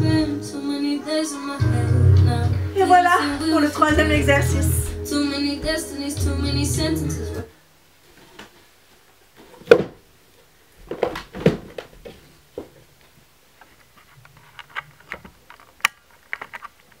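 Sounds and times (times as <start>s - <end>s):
phone handling clicks and rustles: 13.6s - 17.0s.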